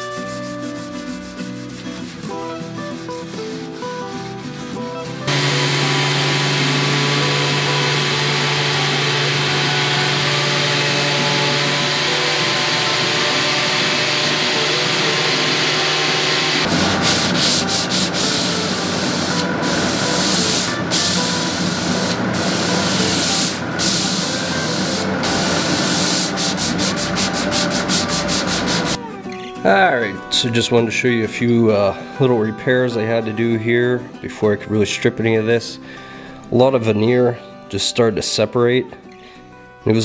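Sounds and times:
hand sanding strokes: 0.0 - 29.0
orbital sander running: 5.3 - 29.0.

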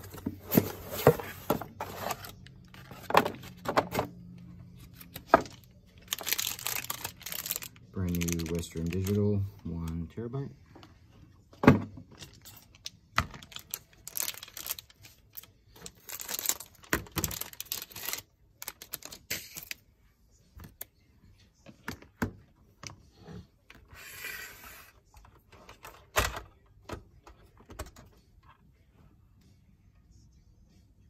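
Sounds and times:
plastic bag crinkling: 6.0 - 9.2, 13.4 - 15.2, 15.8 - 19.7.

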